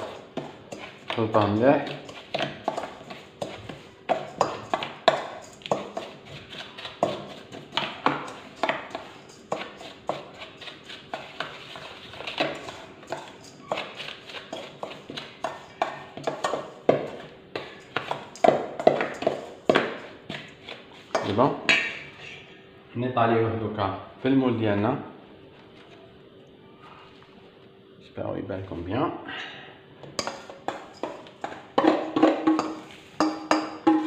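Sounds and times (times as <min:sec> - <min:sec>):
metal spoon scraping steel bowl: 0:00.0 - 0:19.6.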